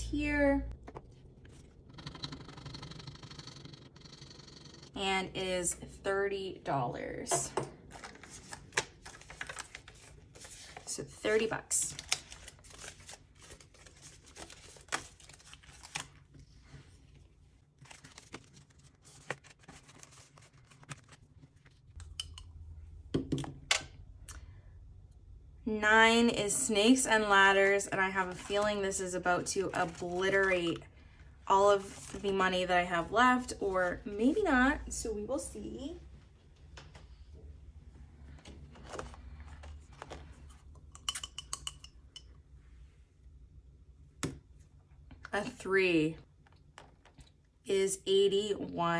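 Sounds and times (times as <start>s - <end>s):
plastic banknotes crinkling: 7.8s - 16.6s, 17.7s - 21.9s
paper rustling: 7.9s - 11.0s, 11.9s - 17.1s, 17.7s - 21.8s.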